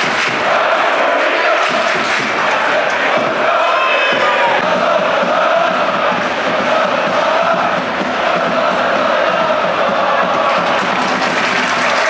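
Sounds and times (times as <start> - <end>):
football crowd chanting and singing: 0.0 - 12.0.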